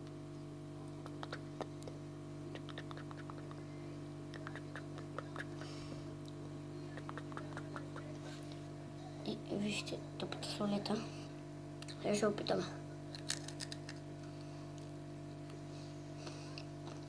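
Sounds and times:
steady low hum: 0.0s - 17.0s
snack being chewed: 13.1s - 15.6s.

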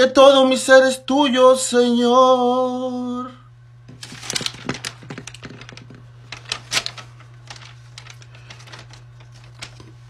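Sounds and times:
steady low hum: 0.0s - 10.0s
handling clicks and rustles: 4.0s - 10.0s.

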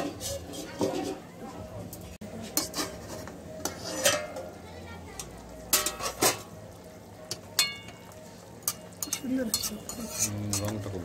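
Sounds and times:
metal knocks on a pan: 5.7s - 6.5s.

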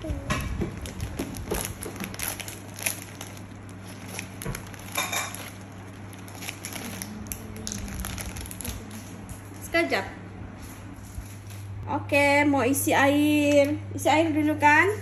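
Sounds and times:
steady low hum: 0.0s - 15.0s
plastic packet crinkling: 0.7s - 9.2s.

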